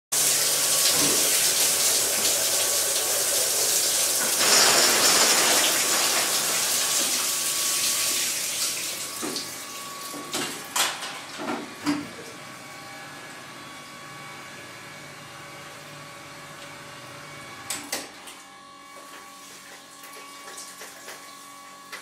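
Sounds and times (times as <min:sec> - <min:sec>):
water spraying and splashing: 0:00.1 - 0:10.1.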